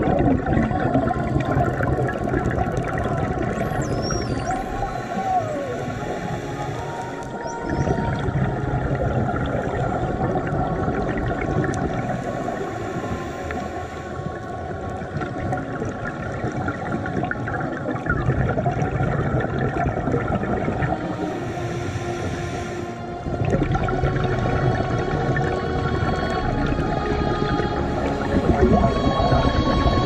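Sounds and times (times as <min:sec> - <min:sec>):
fine underwater crackling: 0:00.0 - 0:30.0
underwater regulator bubbling: 0:00.0 - 0:30.0.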